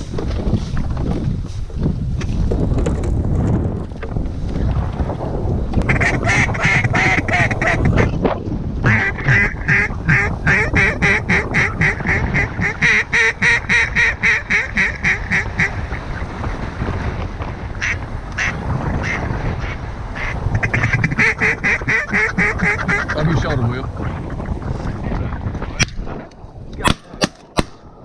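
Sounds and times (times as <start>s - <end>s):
wind rumble on microphone: 0.0s - 28.0s
duck quacks: 8.8s - 15.7s, 17.8s - 23.2s.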